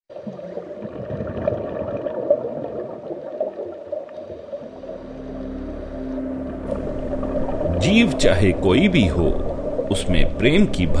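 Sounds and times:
muffled bubbling water: 0.1s - 11.0s
low steady hum: 4.3s - 11.0s.

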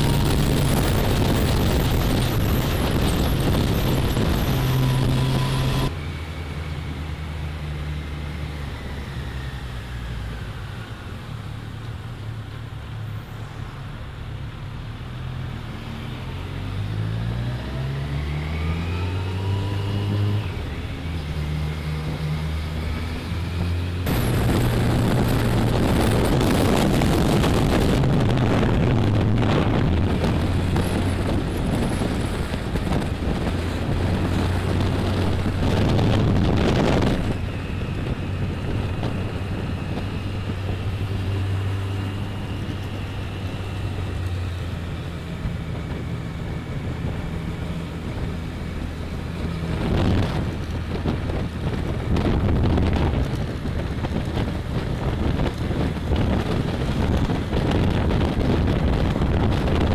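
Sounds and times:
wind rushing over microphone: 0.0s - 11.5s, 15.6s - 59.9s.

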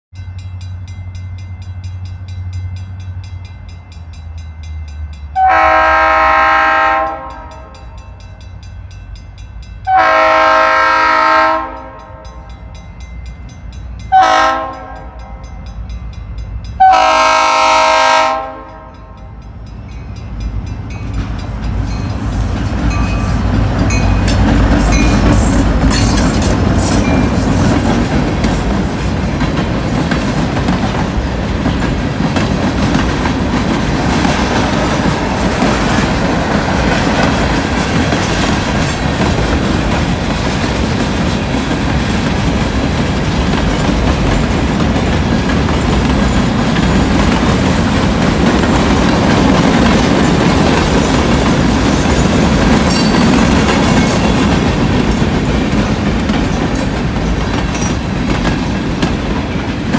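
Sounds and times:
train wheels clacking on rails: 0.3s - 59.9s
train horn blasts: 5.3s - 8.4s, 9.8s - 12.8s, 14.0s - 15.6s, 16.8s - 19.5s.

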